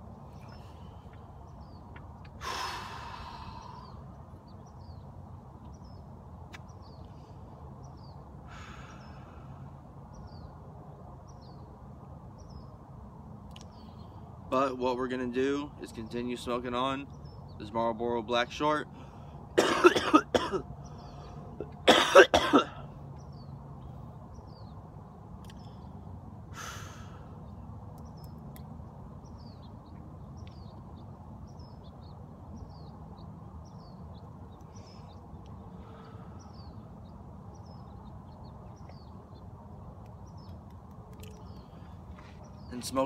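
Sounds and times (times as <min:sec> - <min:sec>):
outdoor background noise: 0:00.0 - 0:43.0
man coughing: 0:19.6 - 0:20.6, 0:21.6 - 0:22.8.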